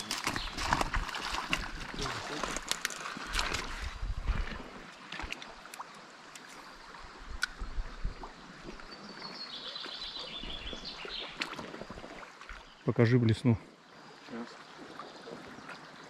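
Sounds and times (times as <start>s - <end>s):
paddle splashes and knocks: 0.0s - 5.9s, 10.2s - 12.8s
running river water: 0.0s - 16.0s.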